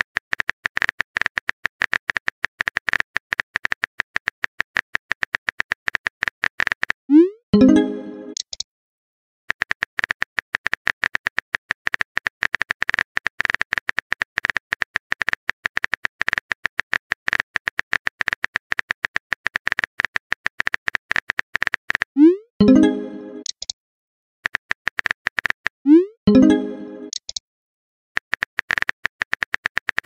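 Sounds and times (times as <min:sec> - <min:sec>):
phone keyboard typing clicks: 0:09.5 - 0:22.1, 0:23.1 - 0:23.8, 0:26.5 - 0:27.4.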